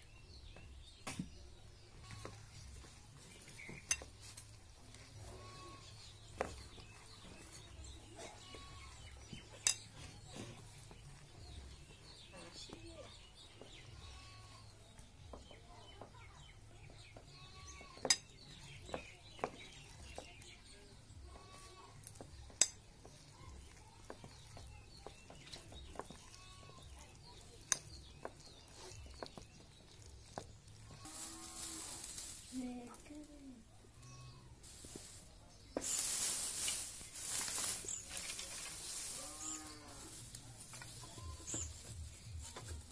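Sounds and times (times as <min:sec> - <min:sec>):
dry straw rustling: 0:01.3 - 0:16.4, 0:18.9 - 0:42.9
bangles clinking against bowl: 0:09.5 - 0:10.0
hand squishing mash in a bowl: 0:23.1 - 0:31.1.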